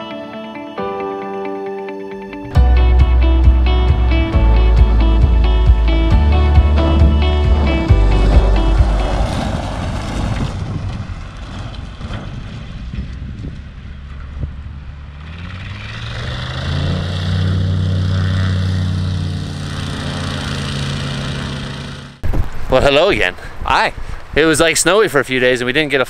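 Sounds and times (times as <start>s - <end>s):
plane engine and propeller: 3.2s - 22.2s
rushing noise: 5.4s - 24.0s.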